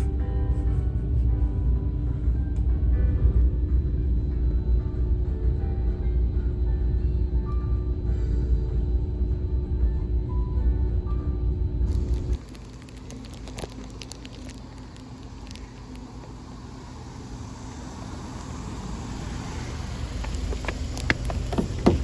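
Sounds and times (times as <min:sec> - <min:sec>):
music: 0:00.0 - 0:12.5
street traffic rumble: 0:11.9 - 0:22.0.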